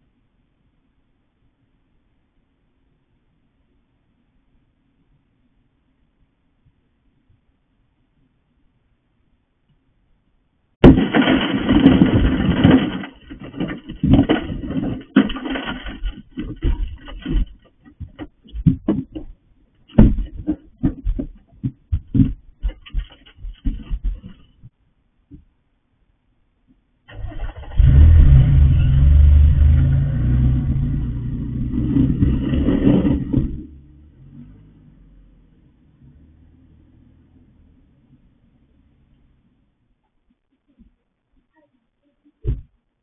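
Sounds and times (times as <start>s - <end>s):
knocks on broken glass: 10.8s - 17.6s
glass crunching and grinding: 10.9s - 17.5s
car engine starting and running: 27.1s - 39.0s.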